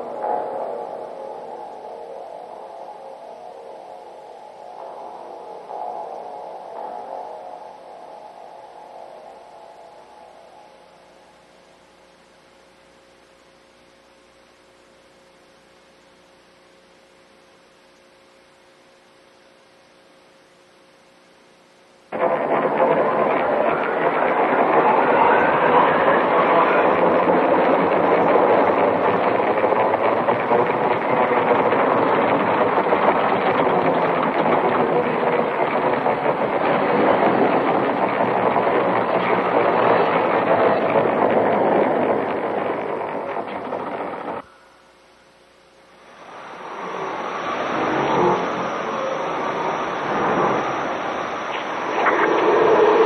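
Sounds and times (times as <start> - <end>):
dense mechanical noise: 0.0 - 53.0
even hiss: 0.0 - 53.0
faint steady hum: 0.0 - 53.0.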